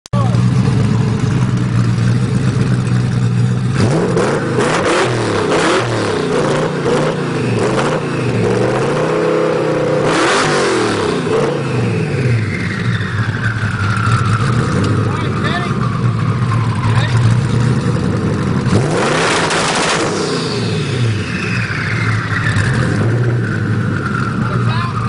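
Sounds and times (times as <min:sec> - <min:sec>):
car engine idling and revving: 0:00.2 - 0:25.0
exhaust crackling: 0:00.2 - 0:25.0.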